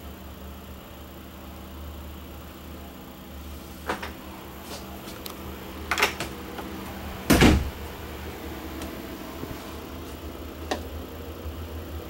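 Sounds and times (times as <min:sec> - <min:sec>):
low steady hum: 0:00.0 - 0:12.0
cabinet door clicking: 0:07.2 - 0:07.8
cabinet door shutting thump: 0:07.2 - 0:07.8
knocks on wooden door: 0:07.3 - 0:07.8.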